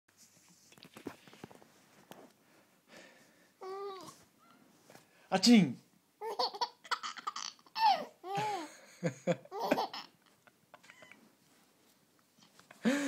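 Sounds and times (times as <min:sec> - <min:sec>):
baby laughing: 0:06.2 - 0:08.8, 0:09.4 - 0:10.2.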